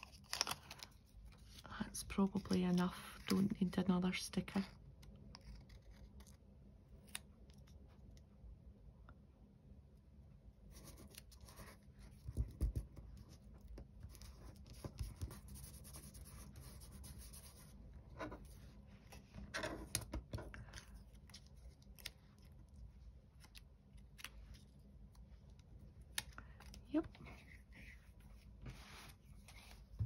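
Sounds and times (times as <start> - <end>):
paper rustling and scratching: 10.7 - 22.8.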